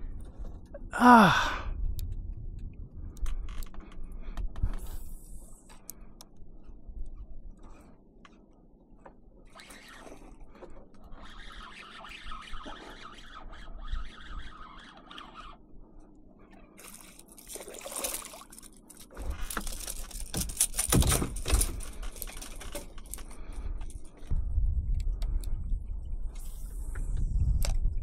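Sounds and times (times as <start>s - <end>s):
water splashing: 16.8s - 18.7s
knocks and rustles: 19.1s - 23.3s.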